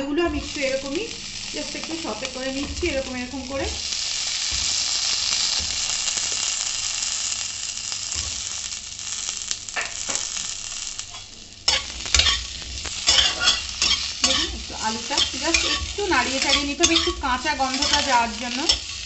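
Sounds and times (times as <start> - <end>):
potatoes sizzling in oil: 0.0 - 19.0
spatula scraping a metal pan: 11.1 - 19.0.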